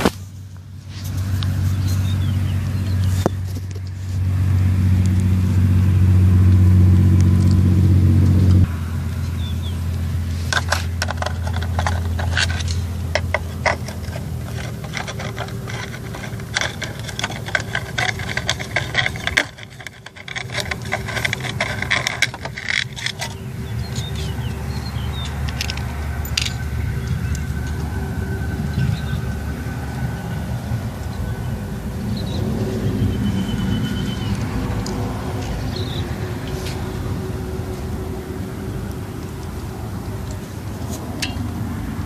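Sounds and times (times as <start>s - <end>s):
metal parts clicking and rattling: 10.5s - 27.8s.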